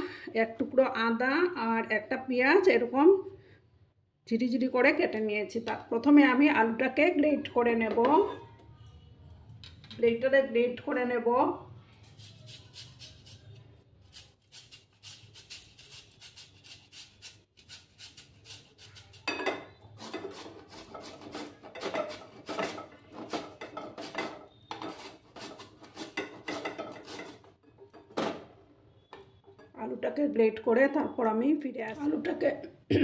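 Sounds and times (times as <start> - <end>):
potato grating on metal grater: 12.0 - 19.3, 20.0 - 27.5.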